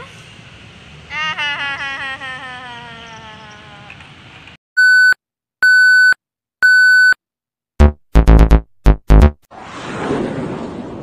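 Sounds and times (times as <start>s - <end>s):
bass-heavy synthesized musical hits: 7.8s - 9.5s.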